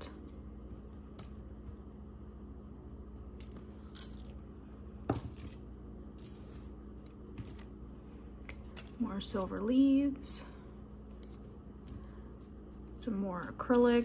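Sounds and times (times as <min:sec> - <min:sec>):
metal jewelry clinking: 0:03.3 - 0:04.4, 0:13.3 - 0:14.0.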